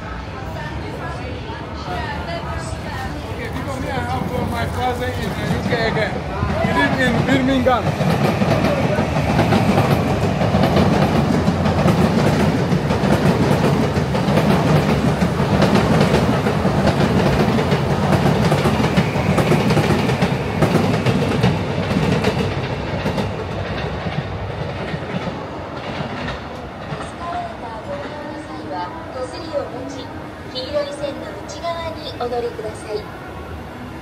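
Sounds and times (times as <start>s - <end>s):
train wheels clattering over rails: 3.5s - 28.4s.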